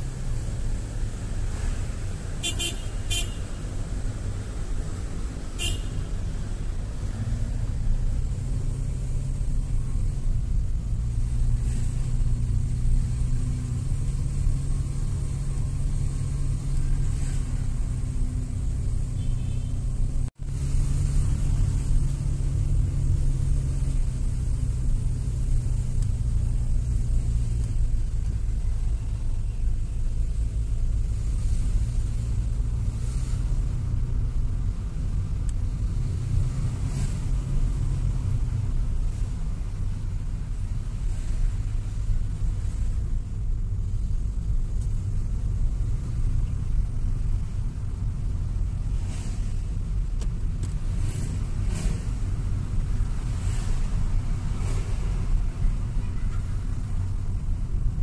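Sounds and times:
car engine and tyres rumbling: 0.0s - 58.0s
car horn toot: 2.4s - 3.6s, 5.6s - 6.2s, 19.1s - 19.9s.

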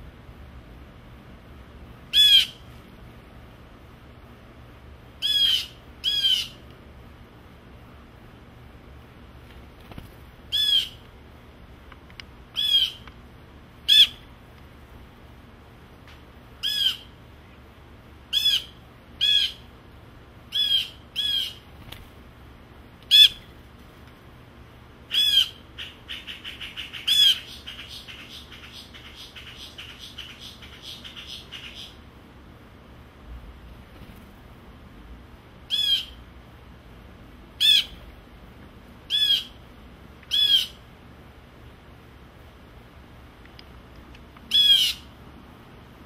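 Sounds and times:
blue jay calling: 2.1s - 2.7s, 5.2s - 6.6s, 10.5s - 11.1s, 12.5s - 13.1s, 13.8s - 14.3s, 16.6s - 17.2s, 18.3s - 19.7s, 20.5s - 21.7s, 23.0s - 23.5s, 25.1s - 32.0s, 35.7s - 36.2s, 37.6s - 38.0s, 39.0s - 39.6s, 40.2s - 40.8s, 44.5s - 45.1s.

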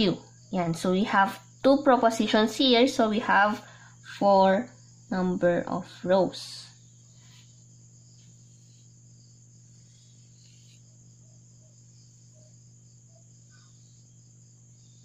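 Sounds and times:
marker squeaking on whiteboard: 8.2s - 9.0s, 9.8s - 10.9s.

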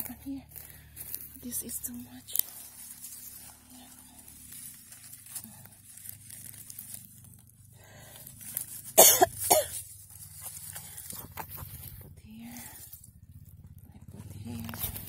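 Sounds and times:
person coughing: 9.0s - 9.8s.

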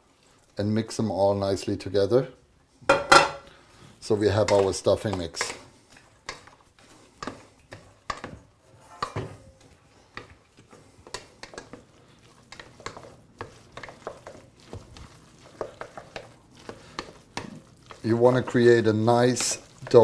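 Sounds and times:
wooden spoon stirring food: 0.0s - 20.0s
spoon scraping metal pan: 4.3s - 20.0s.

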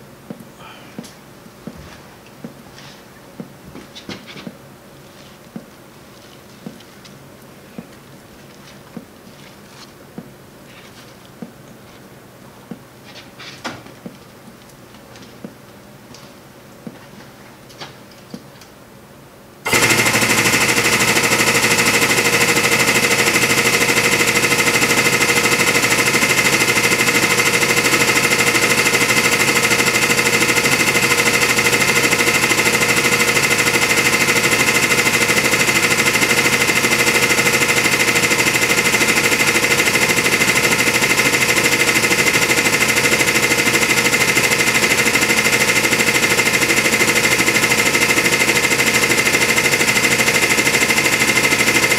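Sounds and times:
hydraulic pump motor whining: 19.7s - 51.9s.

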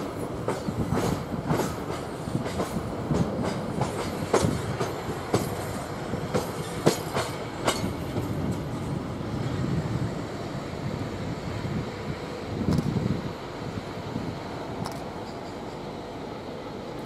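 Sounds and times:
train wheels clacking over rail joints: 0.0s - 8.8s, 14.8s - 16.0s
low train rumble: 0.0s - 17.0s.

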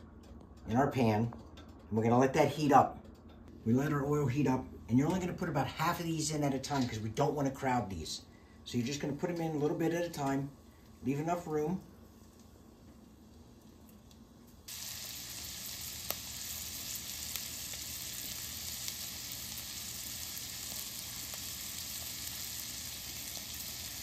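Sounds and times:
meat sizzling in hot oil: 14.6s - 24.0s.

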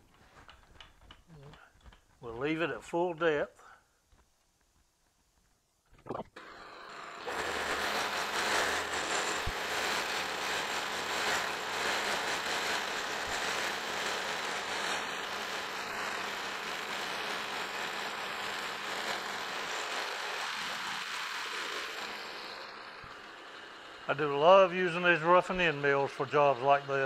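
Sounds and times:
milling machine cutting metal: 6.4s - 27.0s.

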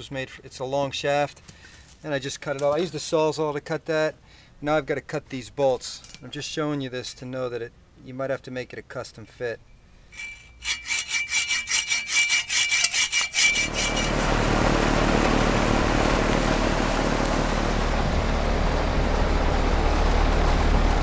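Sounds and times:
hacksaw cutting through steel bolt: 10.2s - 14.3s
air conditioner condenser humming: 12.2s - 21.0s.

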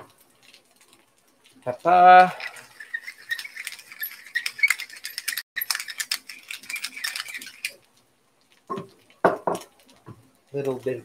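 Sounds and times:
pepper mill grinding: 1.6s - 7.9s.

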